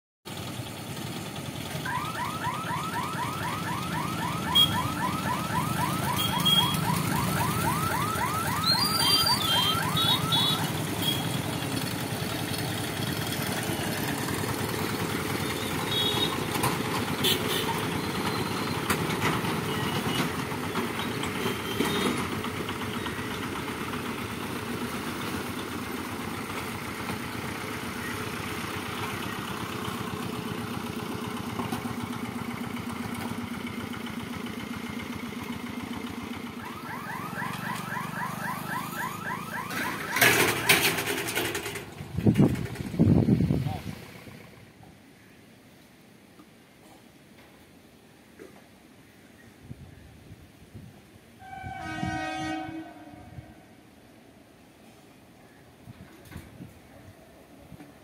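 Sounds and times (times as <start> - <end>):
small vehicle engines running: 0.3 - 45.1
electronic alarm warbling: 1.8 - 10.7
short high beeps: 8.6 - 10.6.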